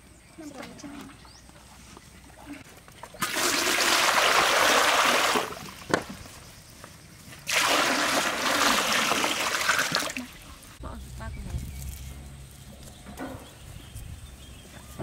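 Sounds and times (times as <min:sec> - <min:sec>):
water splashing into metal wok: 0:07.5 - 0:10.3.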